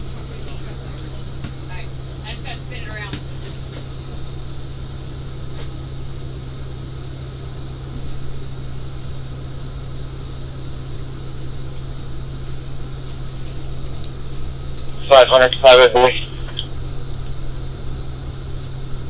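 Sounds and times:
low vehicle hum: 0.0 - 19.0
faint high whine: 14.8 - 18.3.

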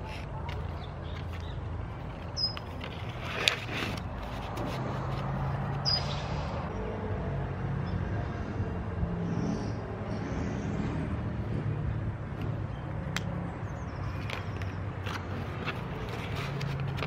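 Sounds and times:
paper rustling: 0.0 - 5.8, 14.1 - 17.0
distant road traffic: 0.0 - 17.0.

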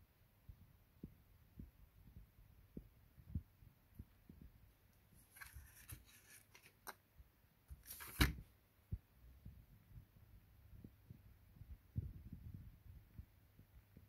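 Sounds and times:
scratchy rustle with clicks: 5.2 - 7.0.

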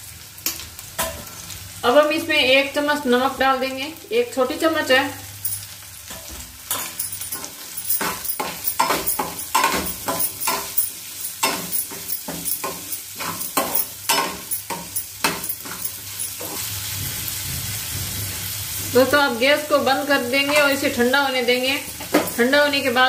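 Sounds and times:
oil sizzling: 0.0 - 23.0
metal spatula scraping pan: 6.1 - 19.1.

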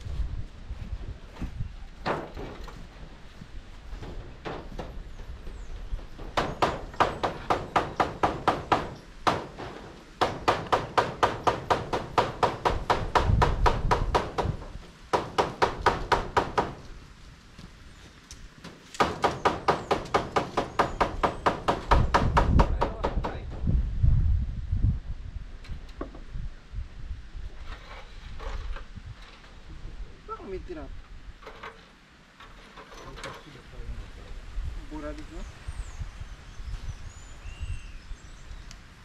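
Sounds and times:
hammer beating on metal roof: 6.2 - 16.8, 19.0 - 23.6.

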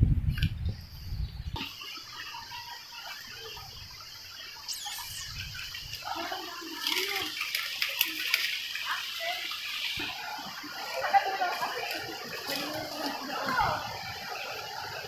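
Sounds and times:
steady high hiss: 0.8 - 15.0
footsteps splashing through water: 5.9 - 13.9.

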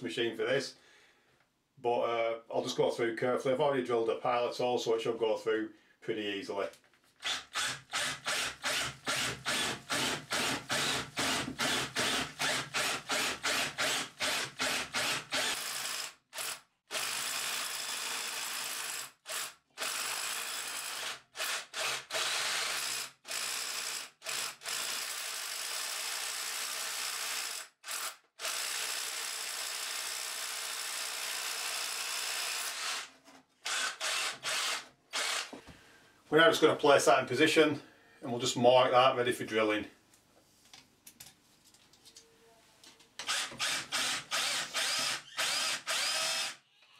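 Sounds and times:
hammer drill boring into brick: 7.2 - 35.5, 43.2 - 46.6.

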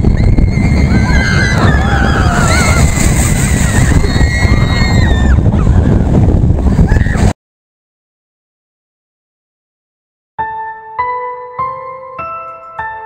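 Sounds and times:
riders screaming: 0.0 - 6.1
wind buffeting microphone: 0.0 - 7.4.

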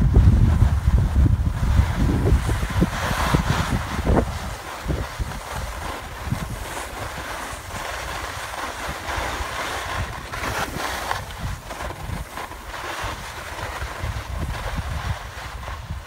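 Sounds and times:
skis scraping over snow: 0.0 - 16.0
wind rumble on microphone: 0.0 - 16.0.

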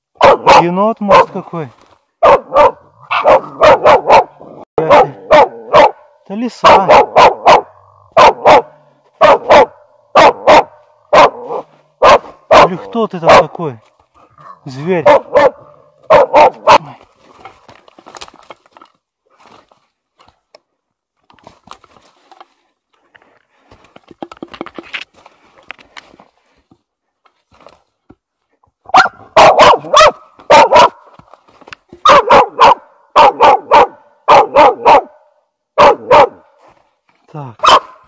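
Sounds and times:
dog barking in rapid bursts: 0.1 - 1.5, 2.2 - 13.7, 14.4 - 17.0, 28.9 - 31.2, 32.0 - 36.6, 37.6 - 38.0.

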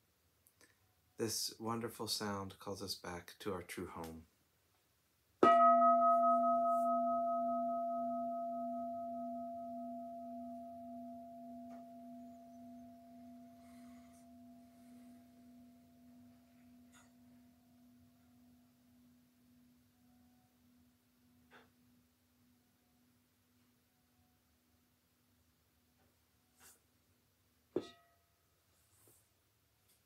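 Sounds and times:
meditation bell ringing: 5.4 - 17.1.

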